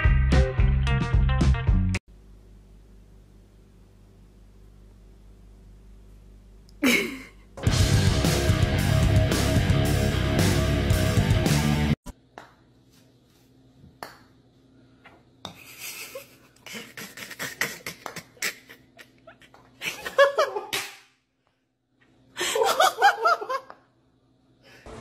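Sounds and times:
person laughing: 6.8 - 7.5, 15.6 - 20.8, 22.4 - 23.8.

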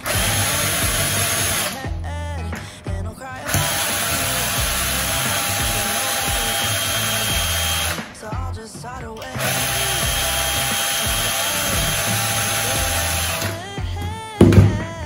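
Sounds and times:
cordless drill-driver running: 0.0 - 1.8, 3.5 - 8.0, 9.4 - 13.6.

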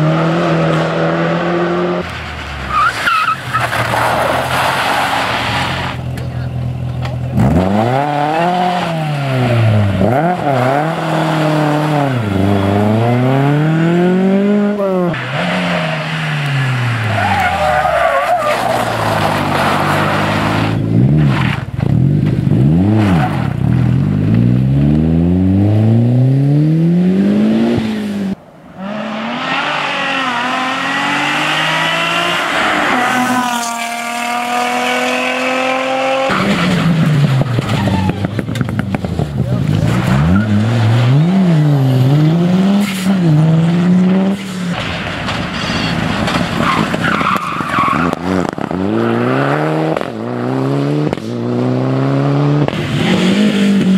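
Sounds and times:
rally car engines revving: 0.0 - 53.9
tyres skidding: 0.0 - 53.9.

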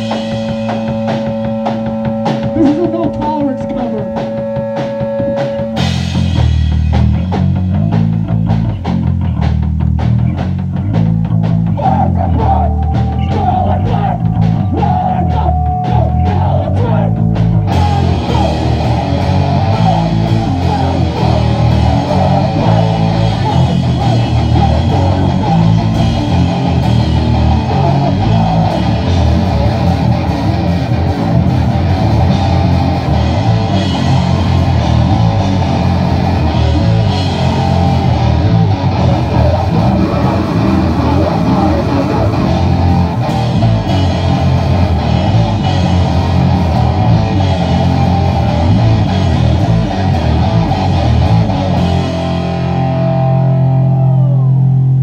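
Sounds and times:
bass guitar: 0.0 - 55.0
drum kit: 0.0 - 55.0
electric guitar: 0.0 - 55.0
person shouting into a microphone: 2.5 - 4.4, 11.7 - 18.8, 19.7 - 25.8, 39.2 - 42.8.

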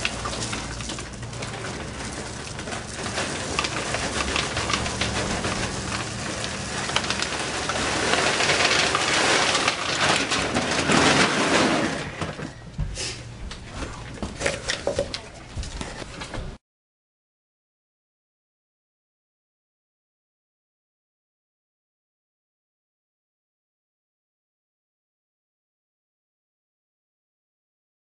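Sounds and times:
dry kibble pouring into plastic bin: 0.0 - 12.2.

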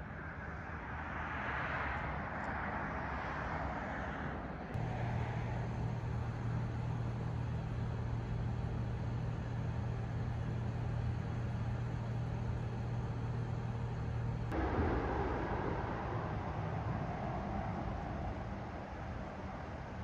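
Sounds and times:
hissy outdoor noise: 0.0 - 20.0
car engine idling: 4.8 - 20.0.

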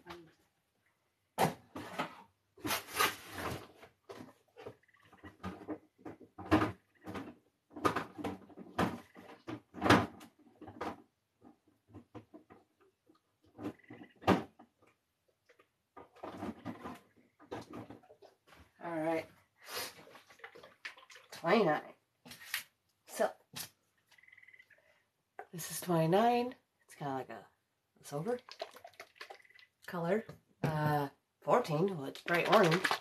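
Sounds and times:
plastic bottles clattering together: 32.0 - 33.0.

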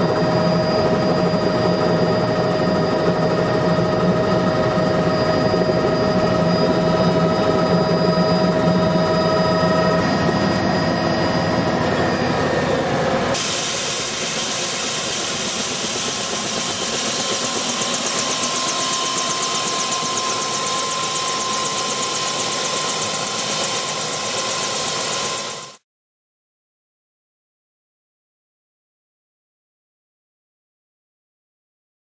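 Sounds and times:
helicopter turbine whine: 0.0 - 25.8
rotor blades beating: 13.8 - 25.6.

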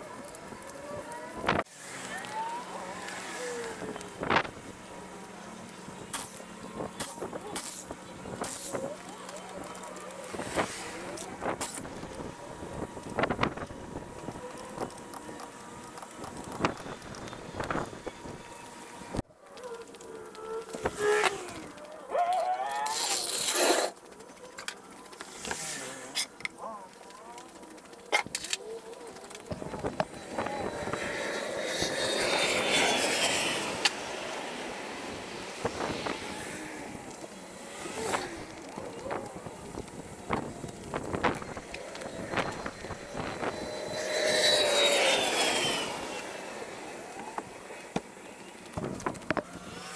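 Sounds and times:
wind: 0.0 - 49.9
distant traffic: 23.9 - 49.9.

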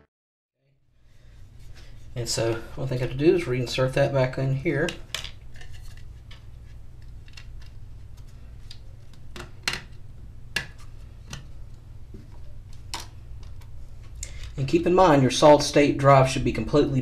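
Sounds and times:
steady low hum: 0.7 - 17.0.

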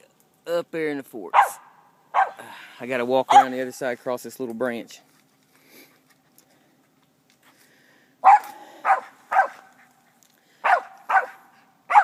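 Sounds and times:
dog barking sharply: 1.4 - 2.4, 3.3 - 3.5, 8.2 - 9.7, 10.6 - 12.0.

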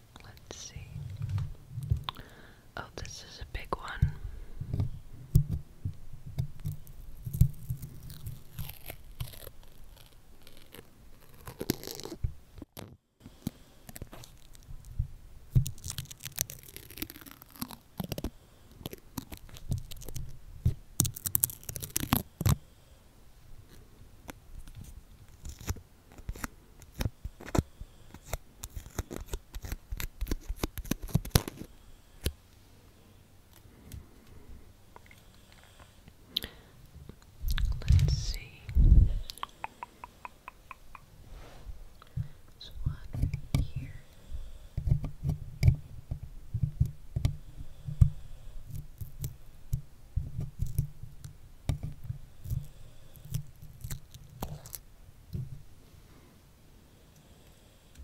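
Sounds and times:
stickers peeling off microphone: 6.3 - 14.9, 15.5 - 22.6, 23.7 - 32.4
low handling rumble: 37.4 - 39.4
sharp clicks and taps: 37.5 - 41.1.

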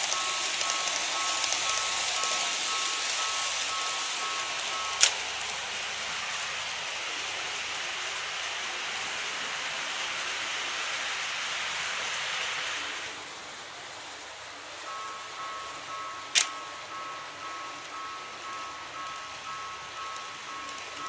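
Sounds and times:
two-tone warning bell: 0.0 - 9.6, 14.6 - 21.0
model train wheels and motor rattling: 0.0 - 21.0.

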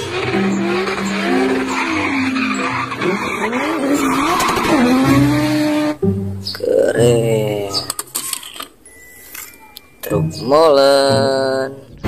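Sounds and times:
car engine revving: 0.0 - 8.0
tyres squealing: 0.0 - 12.0.

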